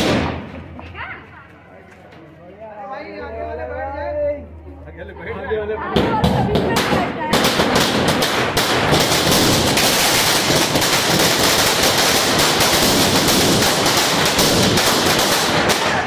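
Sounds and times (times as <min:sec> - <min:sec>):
firecrackers banging rapidly: 0:00.0 - 0:00.8, 0:06.0 - 0:16.0.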